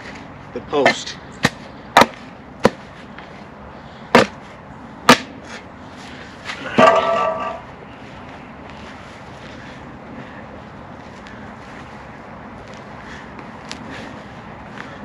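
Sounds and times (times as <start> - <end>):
spade chopping into grass sod: 0.8 - 2.8, 4.1 - 4.4, 5.1 - 5.3.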